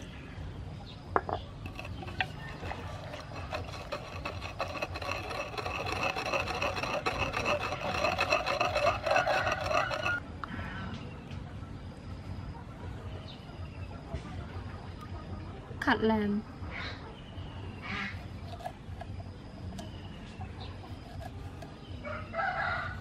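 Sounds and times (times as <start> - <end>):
pestle grinding in wooden mortar: 1.3 - 10.2, 18.0 - 20.0, 20.8 - 22.0.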